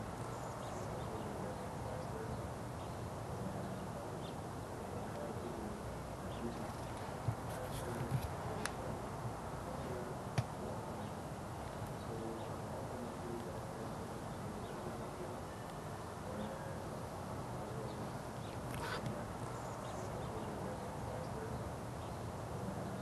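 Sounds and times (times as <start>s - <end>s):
outdoor background noise: 0.0s - 23.0s.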